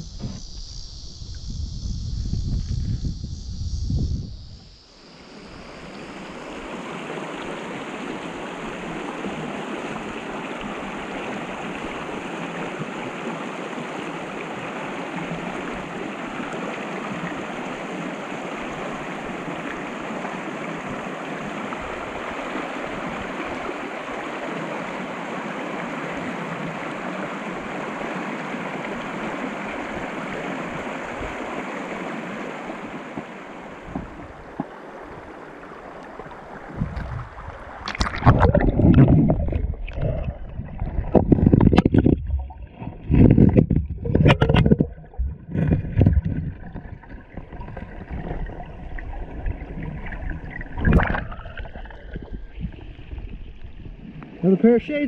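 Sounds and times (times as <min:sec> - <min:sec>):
river rushing over rocks: 0:06.5 - 0:36.7.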